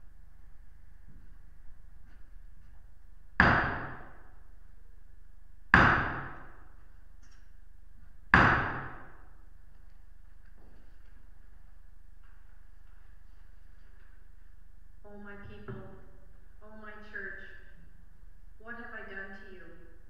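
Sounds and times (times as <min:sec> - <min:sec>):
hammer blows echoing: 0:03.4 - 0:04.4, 0:05.7 - 0:06.7, 0:08.3 - 0:09.3.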